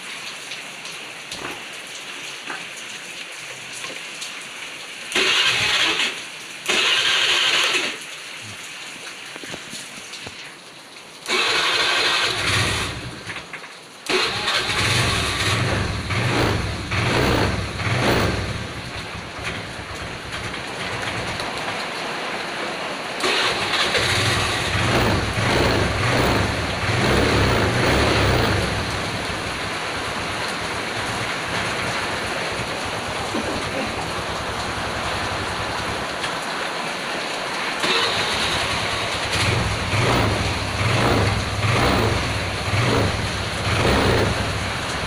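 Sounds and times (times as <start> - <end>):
scooter engine revving and idling: 5.2 - 8.0, 11.3 - 13.4, 14.1 - 21.4, 23.2 - 36.1, 37.8 - 45.0.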